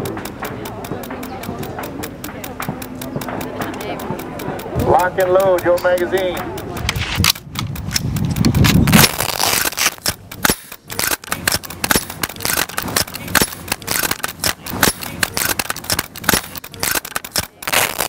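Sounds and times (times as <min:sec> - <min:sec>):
rifles firing rapidly: 0:09.0 - 0:18.0.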